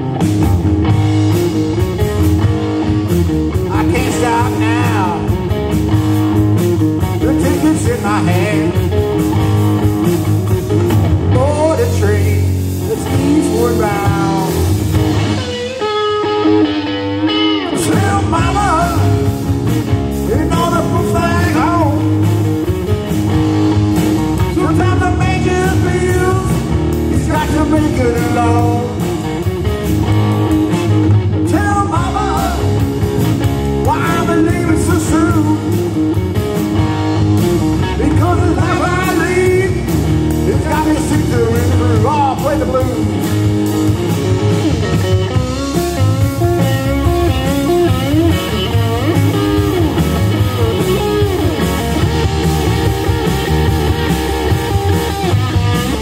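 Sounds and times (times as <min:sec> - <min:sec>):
bass guitar: 0:00.0 - 0:56.0
drum kit: 0:00.0 - 0:56.0
electric guitar: 0:00.0 - 0:56.0
person singing lead vocal: 0:03.6 - 0:05.6, 0:07.0 - 0:09.1, 0:11.2 - 0:14.8, 0:17.3 - 0:22.4, 0:24.4 - 0:29.4, 0:31.3 - 0:33.0, 0:33.8 - 0:36.0, 0:37.7 - 0:43.5.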